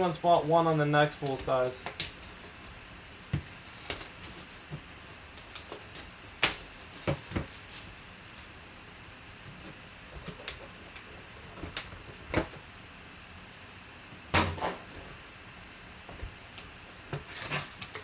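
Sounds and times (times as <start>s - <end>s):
shrink wrap crinkling: 1.1s - 8.7s.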